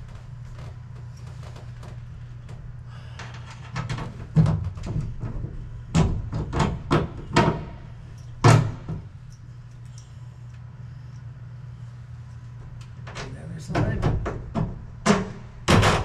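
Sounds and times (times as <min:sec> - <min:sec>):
steady low hum: 0:00.0 - 0:16.0
knocks and thumps: 0:03.7 - 0:07.8, 0:13.7 - 0:16.0.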